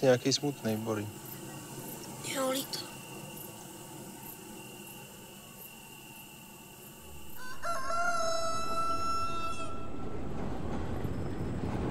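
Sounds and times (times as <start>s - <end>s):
rooster crowing: 7.0s - 10.4s.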